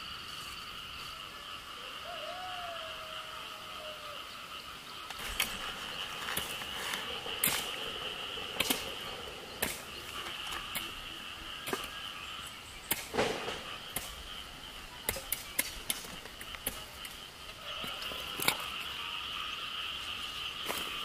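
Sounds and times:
high-pitched insect drone: 0.0s - 21.0s.

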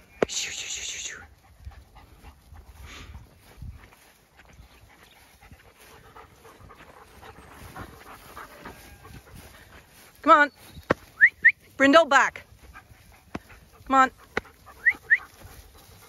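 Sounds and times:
dog panting: 1.1s - 10.2s, 12.3s - 16.0s.

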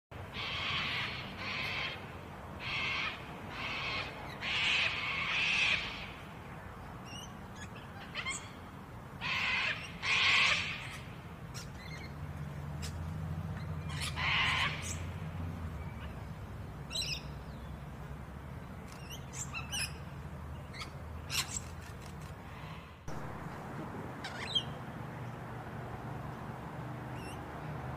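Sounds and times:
lorikeets screeching: 0.3s - 6.3s, 7.0s - 8.6s, 9.2s - 12.2s, 12.8s - 15.2s, 15.8s - 17.4s, 18.9s - 21.8s, 24.2s - 24.8s, 27.1s - 27.4s.

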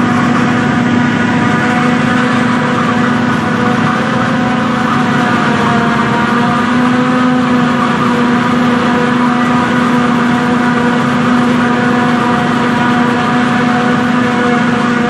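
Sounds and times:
forage harvester engine droning: 0.0s - 15.0s.

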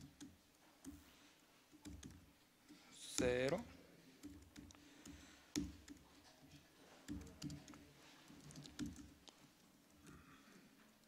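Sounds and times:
laptop keyboard typing: 0.0s - 10.2s.

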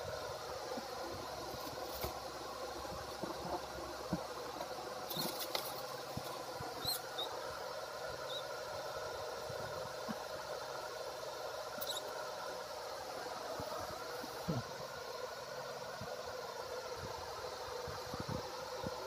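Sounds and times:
steady background hum: 0.0s - 19.0s
mice squeaking: 5.0s - 5.8s, 6.7s - 7.5s, 8.1s - 8.6s, 11.8s - 12.2s.

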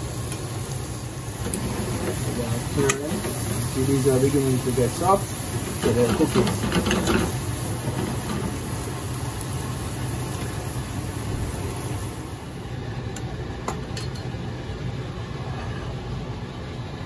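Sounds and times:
eggplant sizzling in a pan: 0.0s - 12.6s.

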